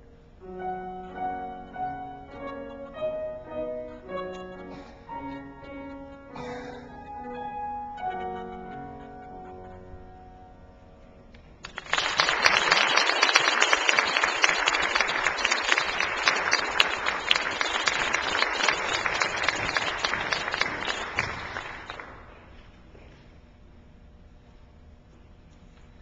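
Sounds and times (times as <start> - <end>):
audience applauding: 11.6 - 22.5.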